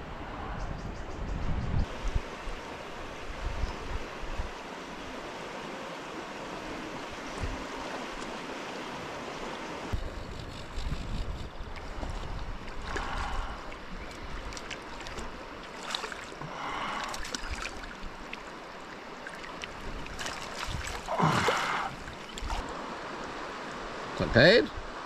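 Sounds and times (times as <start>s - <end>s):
river water running: 1.9s - 25.0s
water splashing: 11.8s - 22.7s.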